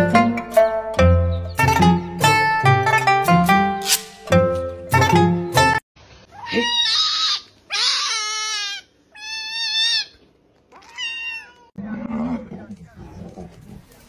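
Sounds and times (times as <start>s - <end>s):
plucked-string music: 0.0s - 5.8s
kitten meowing: 6.3s - 11.7s.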